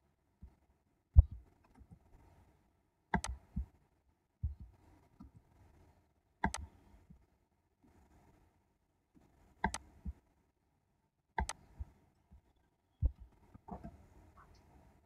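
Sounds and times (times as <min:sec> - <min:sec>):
computer mouse clicks: 0:03.1 - 0:03.7, 0:06.4 - 0:06.8, 0:09.6 - 0:10.2, 0:11.4 - 0:11.9.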